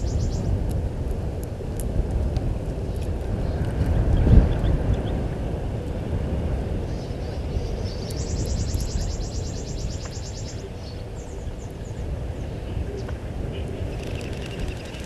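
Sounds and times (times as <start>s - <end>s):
insect pulsing trill: 13.9s - 15.0s.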